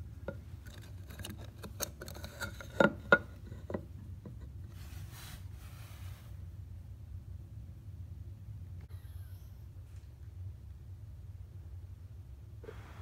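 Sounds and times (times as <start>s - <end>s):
soft rustle: 4.6s - 6.5s.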